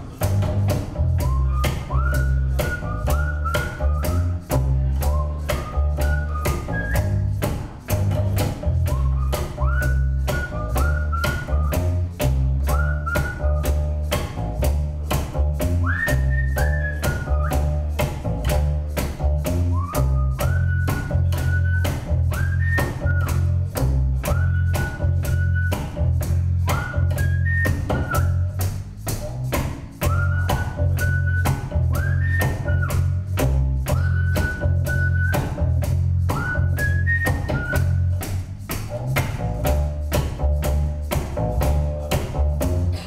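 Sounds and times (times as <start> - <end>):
plucked double bass: 0.0 - 43.0
shaker beat: 0.0 - 43.0
whistled melody: 1.0 - 7.5, 8.6 - 14.1, 15.6 - 17.9, 19.2 - 28.8, 30.0 - 39.9.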